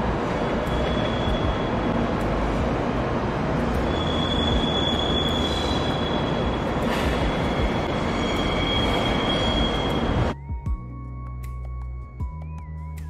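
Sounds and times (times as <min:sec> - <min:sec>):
train running gear rumble: 0:00.0 - 0:10.4
train wheels squealing: 0:00.2 - 0:01.9, 0:03.7 - 0:10.4.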